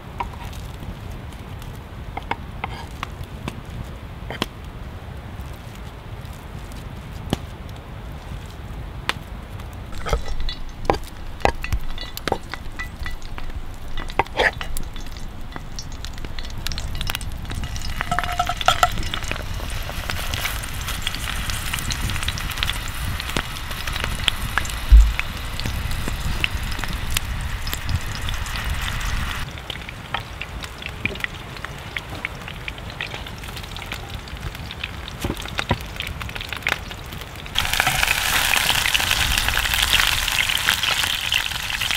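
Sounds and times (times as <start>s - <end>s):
crackles: 0.0s - 41.9s
meat sizzling in a skillet: 10.0s - 34.2s, 37.5s - 41.9s
heavy thump: 24.9s - 25.3s.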